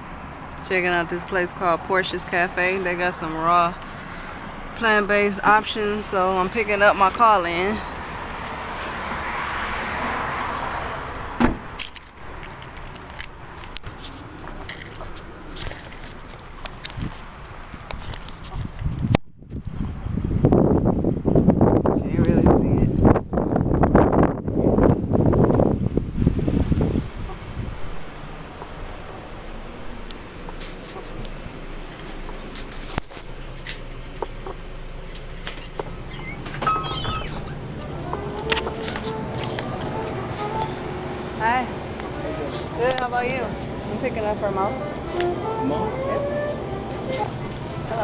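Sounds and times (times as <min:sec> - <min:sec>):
car door shutting: 0:11.4 - 0:11.8, 0:35.4 - 0:40.9
keys jangling: 0:11.8 - 0:13.4, 0:14.6 - 0:16.3
light clicks and rustles: 0:11.8 - 0:19.2.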